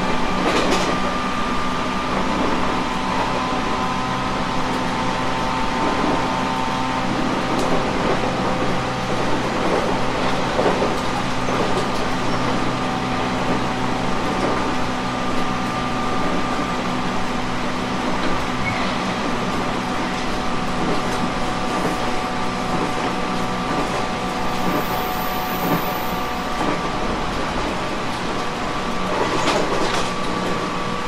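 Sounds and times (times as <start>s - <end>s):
train wheels rumbling on rail: 0.0s - 31.0s
train motor whine: 23.2s - 27.8s.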